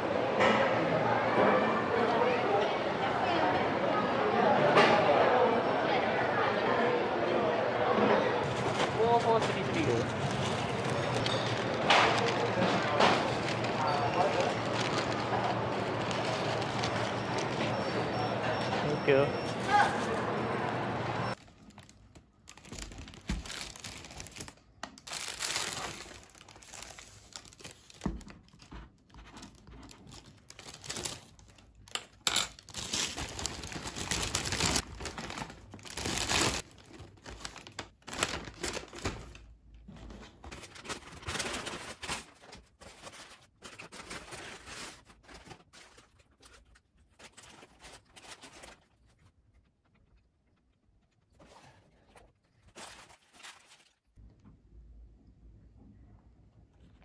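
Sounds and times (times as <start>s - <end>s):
food wrappers crinkling and rustling: 8.4s - 17.9s, 21.3s - 50.6s, 51.4s - 54.2s.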